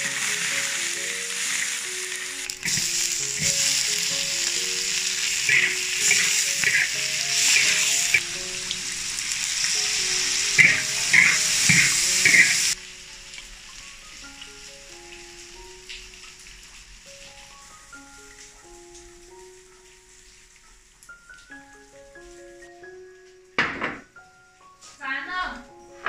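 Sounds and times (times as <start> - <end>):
food sizzling in a wok: 0.0 - 23.0
soft background music: 0.0 - 26.0
spatula scraping a wok: 5.4 - 8.2.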